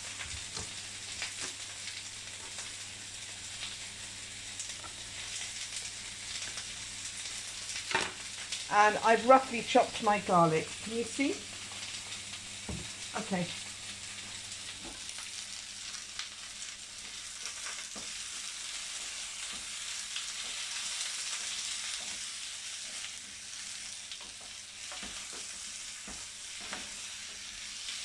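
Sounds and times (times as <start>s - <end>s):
vegetables sizzling in frying pan: 0.0s - 28.0s.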